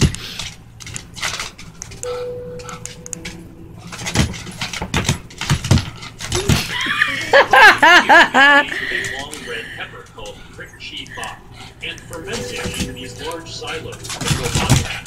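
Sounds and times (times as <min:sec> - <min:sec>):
person laughing: 0:06.4 - 0:09.0.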